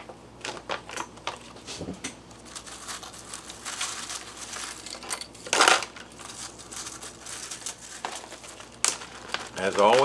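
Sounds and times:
dry food rustling: 0:02.3 - 0:10.0
foil bag crinkling: 0:02.3 - 0:10.0.

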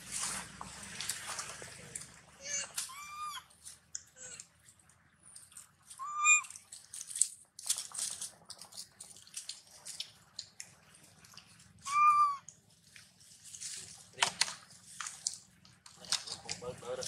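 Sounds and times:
baby monkey high-pitched call: 0:02.4 - 0:03.5, 0:05.9 - 0:06.6, 0:11.8 - 0:12.5
dry leaves crackling: 0:12.6 - 0:16.8.

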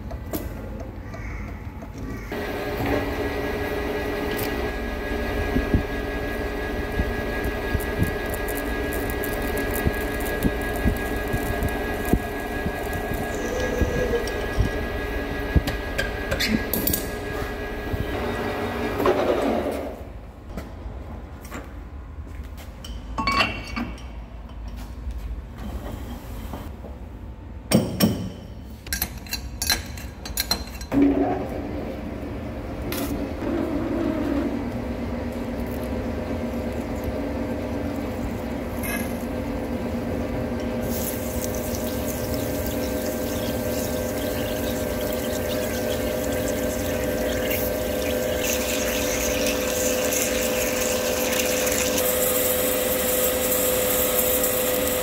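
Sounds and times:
lathe running with steady hum: 0:02.3 - 0:19.6, 0:34.1 - 0:55.0
coolant hiss: 0:40.8 - 0:55.0.

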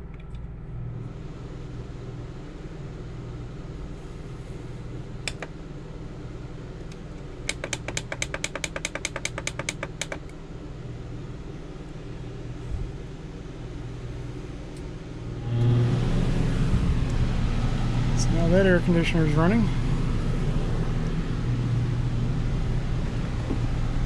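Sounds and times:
generator and air conditioner hum: 0:00.0 - 0:24.0
thermostat button clicks: 0:05.3 - 0:05.5.

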